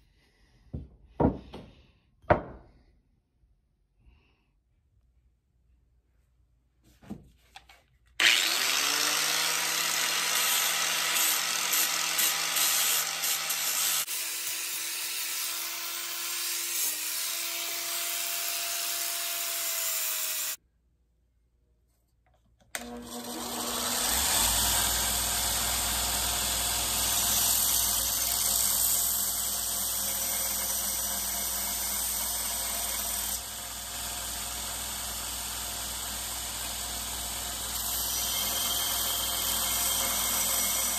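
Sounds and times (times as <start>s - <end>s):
angle grinder grinding: 8.2s - 20.6s, 22.7s - 40.9s
belt grinder running: 8.2s - 20.6s, 22.8s - 40.9s.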